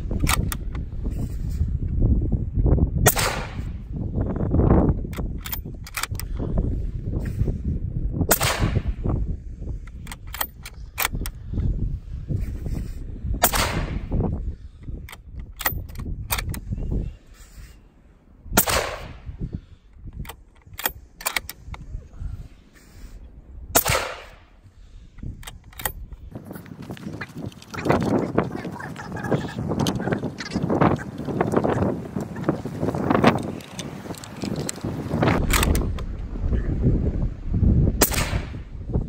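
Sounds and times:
suppressed rifle shots: 0:03.0 - 0:03.7, 0:08.3 - 0:09.0, 0:13.4 - 0:14.1, 0:18.6 - 0:19.3, 0:23.7 - 0:24.5, 0:38.0 - 0:38.6.

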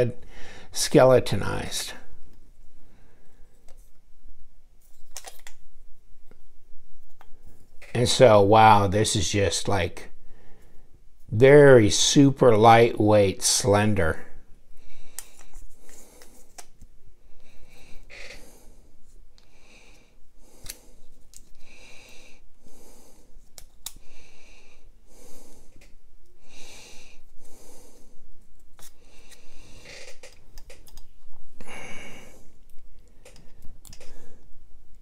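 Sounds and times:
person breathing: 0:00.2 - 0:00.8, 0:02.8 - 0:03.7, 0:10.2 - 0:11.0, 0:14.4 - 0:30.2, 0:31.5 - 0:34.7.

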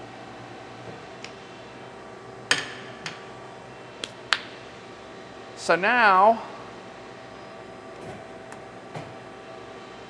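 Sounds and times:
machine hum: 0:00.0 - 0:10.0.

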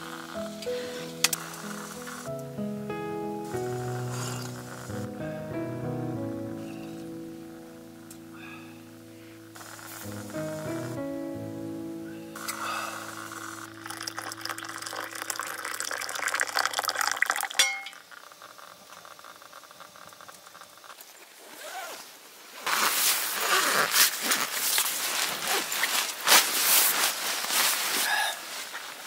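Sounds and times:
wood fire crackling: 0:00.0 - 0:02.7, 0:03.4 - 0:05.2, 0:06.4 - 0:11.1, 0:12.2 - 0:21.0
background music: 0:00.0 - 0:15.5
liquid pouring into glass mug: 0:13.6 - 0:19.8.

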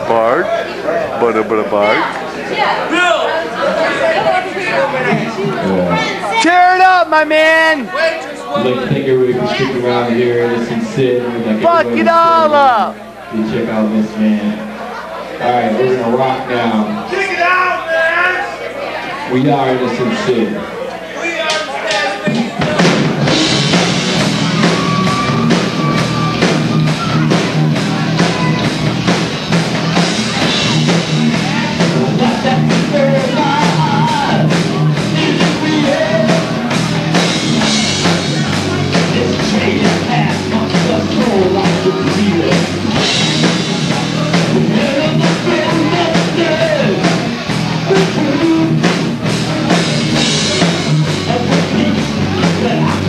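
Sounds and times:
pounding drum kit: 0:08.6 - 0:13.0, 0:22.2 - 0:53.0
electric guitars: 0:22.3 - 0:53.0
person singing: 0:31.8 - 0:36.7.

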